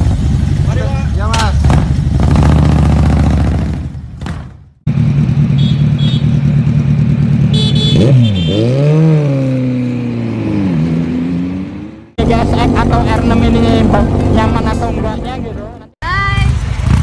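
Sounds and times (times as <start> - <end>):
motorcycle pulling away: 1.6 - 15.1
sport bike engine revving: 1.6 - 15.9.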